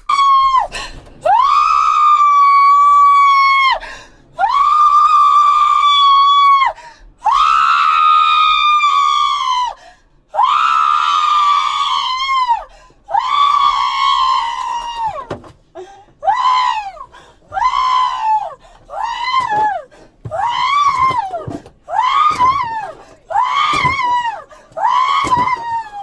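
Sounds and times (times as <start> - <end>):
woman screaming: 0.0 - 3.8, 16.2 - 26.0.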